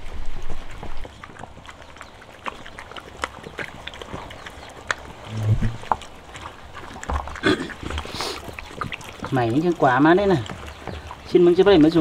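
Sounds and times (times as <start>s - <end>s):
dogs lapping and chewing rice: 0.0s - 12.0s
low rumble: 5.2s - 6.0s.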